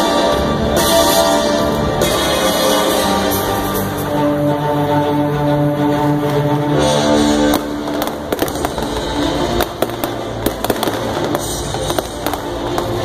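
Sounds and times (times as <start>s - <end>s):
music: 0.0s - 13.0s
fireworks bangs and crackles: 7.4s - 13.0s.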